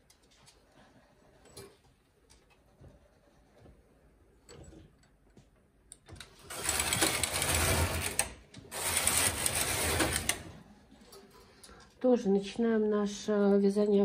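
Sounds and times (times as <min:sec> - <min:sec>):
knitting machine carriage clicking: 0:05.9 - 0:10.6.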